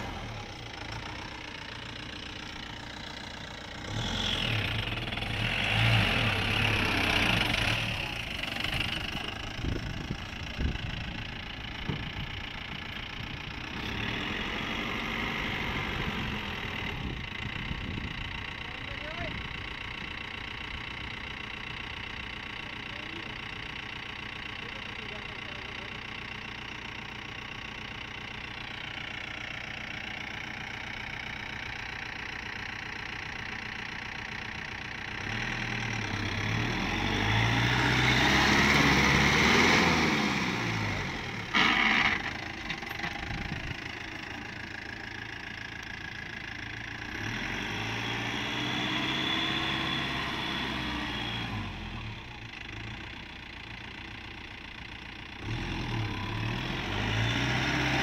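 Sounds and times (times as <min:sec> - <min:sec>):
jeep engine revving: 0:00.0 - 0:12.3, 0:13.5 - 0:17.2, 0:35.1 - 0:45.1, 0:46.8 - 0:53.1, 0:55.4 - 0:58.0.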